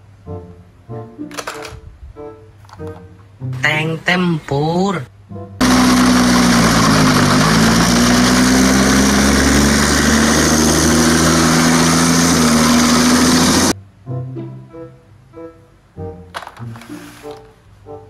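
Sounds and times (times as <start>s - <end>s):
tracked vehicle engine running: 5.6s - 13.8s.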